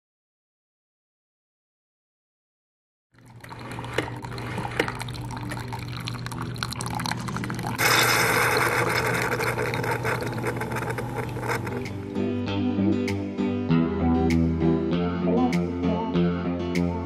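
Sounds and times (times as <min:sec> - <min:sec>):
coffee pouring into a mug: 0:03.2 - 0:12.0.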